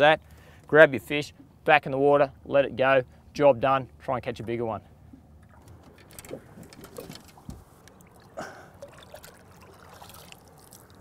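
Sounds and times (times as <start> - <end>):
water trickling and lapping: 5.0 - 11.0.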